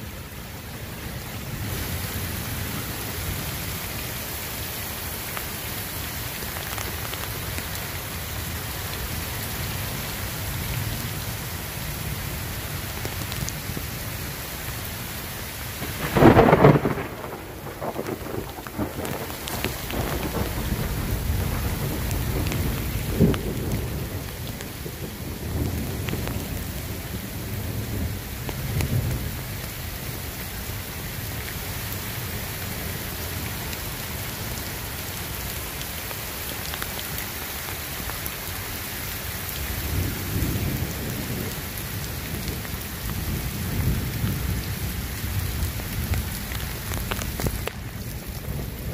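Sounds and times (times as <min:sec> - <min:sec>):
heavy rain falling: 0:00.0 - 0:48.9
thunder cracking and rumbling: 0:15.8 - 0:29.4.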